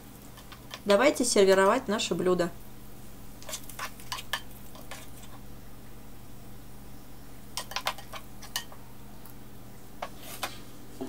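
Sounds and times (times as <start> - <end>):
steady low hum: 0.0 - 11.0
spatula stirring thick sauce: 3.4 - 5.4.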